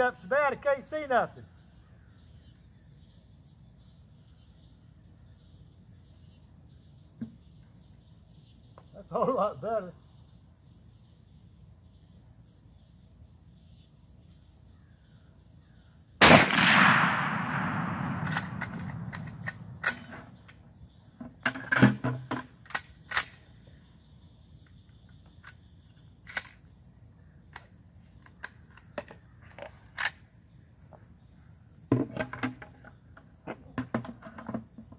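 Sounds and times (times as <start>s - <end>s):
rifle shot echoing: 16.2s - 20.4s
rifle lever clicks and clacks: 17.1s - 20.6s.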